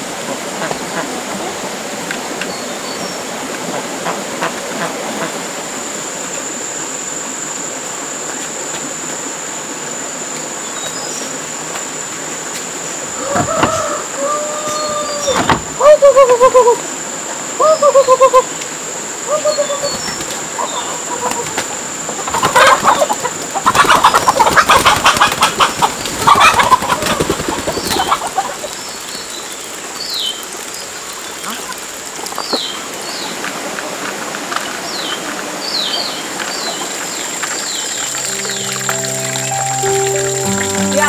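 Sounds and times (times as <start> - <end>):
chickens clucking: 19.4 - 28.6
wings flapping: 23.7 - 28.3
high descending chirps: 38.1 - 41.0.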